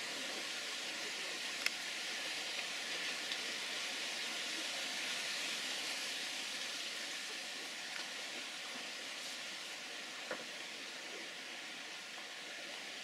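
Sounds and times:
faint clicks: 1.6s - 1.8s.

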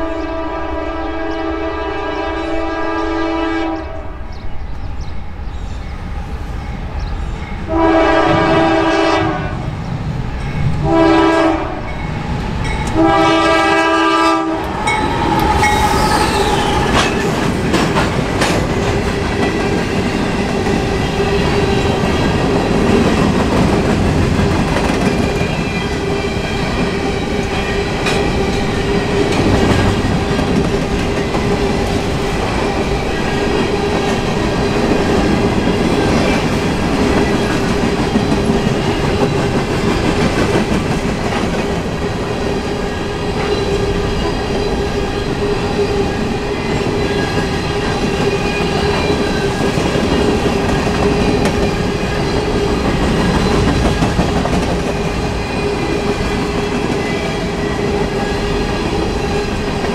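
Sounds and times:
locomotive air horn blasts: 0.0s - 4.1s, 7.7s - 9.7s, 10.8s - 11.9s, 12.9s - 16.8s
train wheels clacking over rails: 11.9s - 59.9s.

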